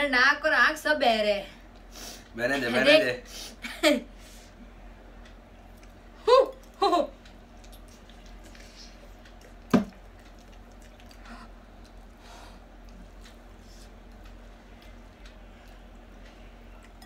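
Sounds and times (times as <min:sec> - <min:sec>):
chewing: 0:05.6 - 0:17.0.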